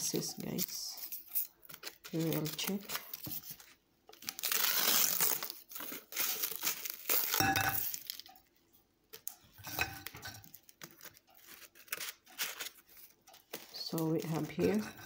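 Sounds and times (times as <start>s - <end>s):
plastic wrapper crinkling: 0.0s - 15.0s
clinks against ceramic plate: 7.4s - 8.0s, 9.6s - 10.5s.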